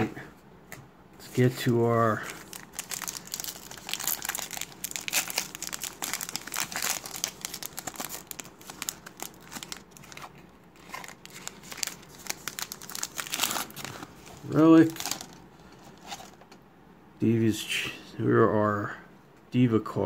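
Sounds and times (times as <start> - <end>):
foil wrapper crinkling and tearing: 2.2 - 15.4.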